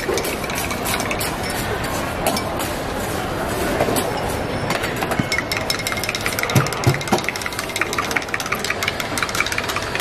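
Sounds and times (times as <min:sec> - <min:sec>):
glassware and utensils clinking: 0:00.0 - 0:03.1, 0:03.8 - 0:10.0
background din of bar: 0:00.0 - 0:10.0.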